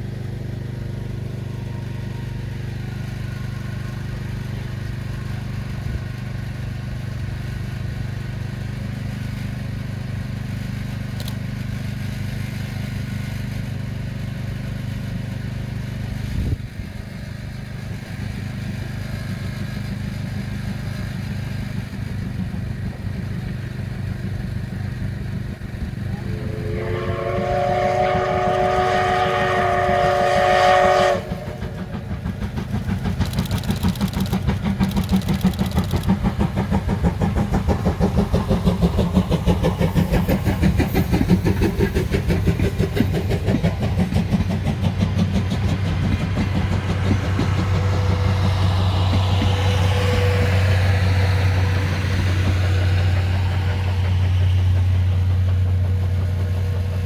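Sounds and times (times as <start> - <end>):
locomotive exhaust chuffs: 0.0 - 57.0
steam locomotive whistle: 26.1 - 32.3, 47.7 - 53.8.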